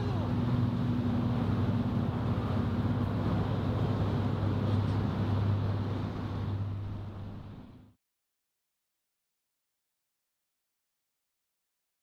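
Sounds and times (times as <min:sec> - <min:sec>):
road traffic drone: 0:00.0 - 0:07.9.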